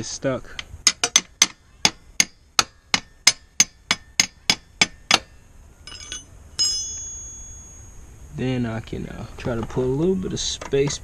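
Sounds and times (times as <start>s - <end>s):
sharp tapping on metal: 0.6s - 5.3s, 5.9s - 8.0s
ringing metal clang: 2.2s - 8.2s.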